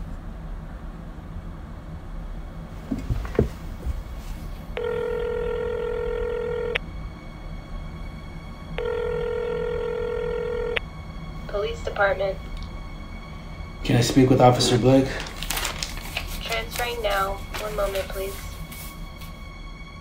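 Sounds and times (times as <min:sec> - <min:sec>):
telephone ringback tone: 0:04.8 - 0:06.8, 0:08.8 - 0:10.8.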